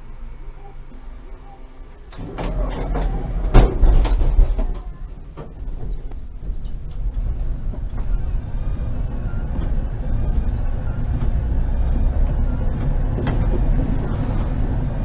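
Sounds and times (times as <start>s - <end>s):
tram rumbling: 0.0s - 15.0s
sharp knocks and clatter: 2.1s - 8.2s, 12.7s - 14.6s.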